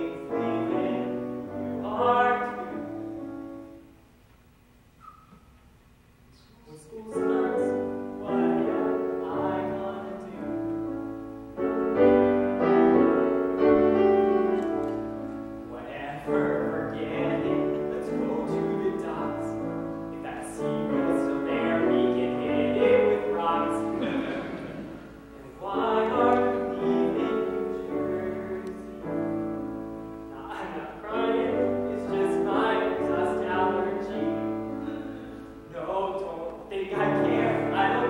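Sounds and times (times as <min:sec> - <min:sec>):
man singing: 0:00.0 - 0:03.0, 0:06.6 - 0:10.8, 0:15.7 - 0:29.4, 0:30.3 - 0:38.0
piano accompaniment: 0:00.0 - 0:04.1, 0:06.8 - 0:38.0.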